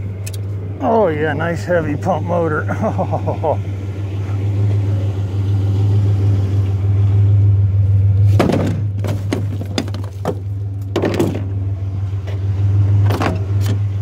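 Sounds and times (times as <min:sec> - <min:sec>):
truck engine idling: 0:00.0 - 0:14.0
metal clanks and knocks: 0:08.3 - 0:11.6.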